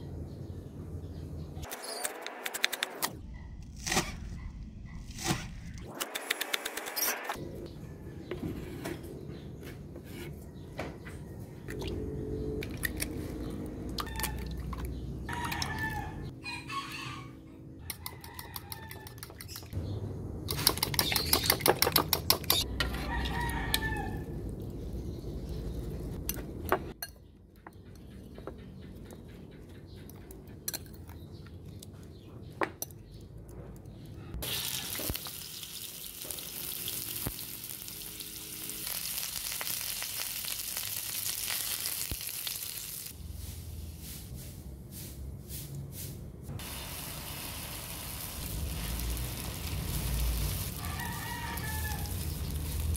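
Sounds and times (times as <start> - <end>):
oil sizzling in a pan: 34.4 - 43.2, 46.6 - 52.9.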